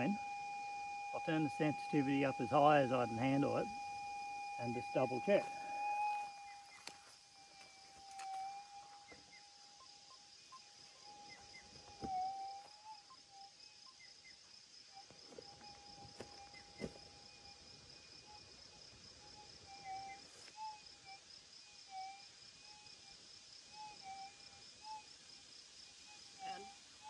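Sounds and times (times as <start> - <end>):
metal detector hum: 0.0 - 13.6, 15.0 - 21.3.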